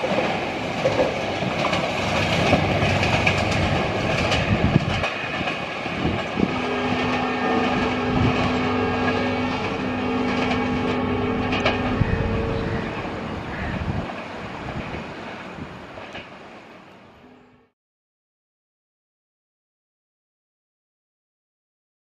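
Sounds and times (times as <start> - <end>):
train rumbling: 0.0 - 17.7
two-note tone: 6.5 - 14.0.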